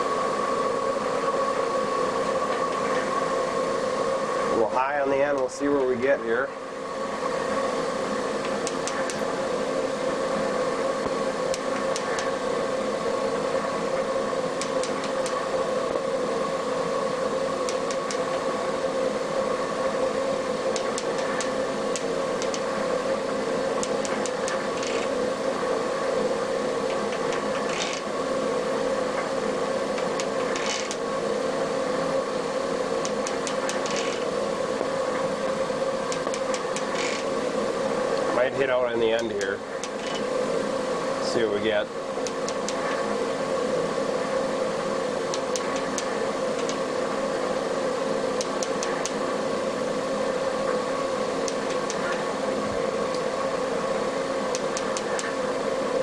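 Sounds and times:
metal shaper humming: 20.4 - 25.5, 26.2 - 28.8, 29.7 - 31.2, 33.0 - 34.4, 36.0 - 37.5.

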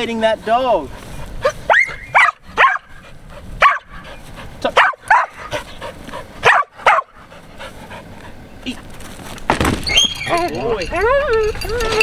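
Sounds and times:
dog barking: 1.4 - 3.0, 3.6 - 4.0, 4.6 - 5.5, 6.4 - 7.2.

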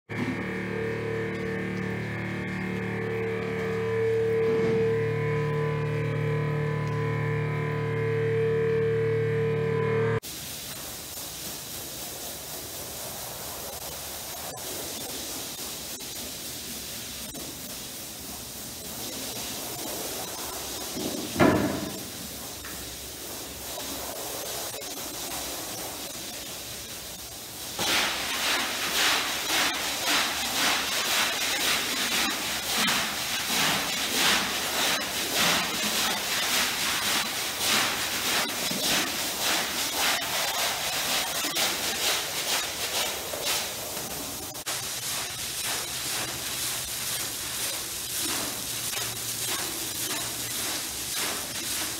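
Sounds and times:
push broom scrubbing: 10.2 - 51.9
water spraying onto rug: 10.2 - 51.9
thump: 21.1 - 22.0.

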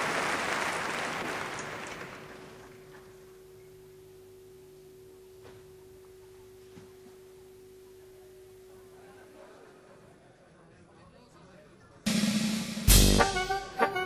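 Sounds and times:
faint steady pure tone: 2.4 - 9.7.

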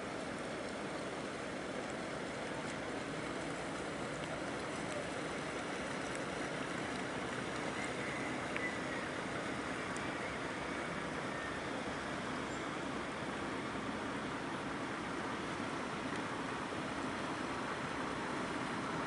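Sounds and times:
boat noise: 0.0 - 19.0
rushing water: 0.0 - 19.0.

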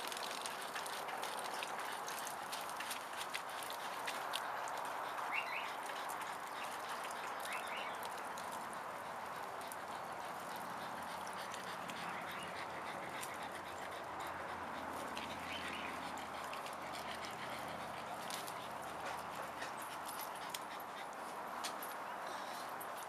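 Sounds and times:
faint dog sounds: 4.0 - 22.8.

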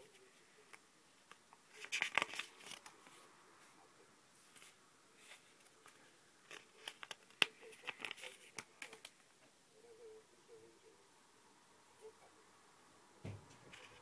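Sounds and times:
paper cards crinkling: 0.1 - 3.2, 4.4 - 9.3.

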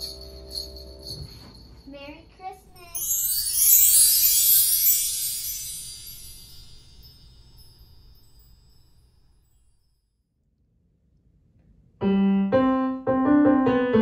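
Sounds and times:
shimmering chime sweep: 2.7 - 10.0.

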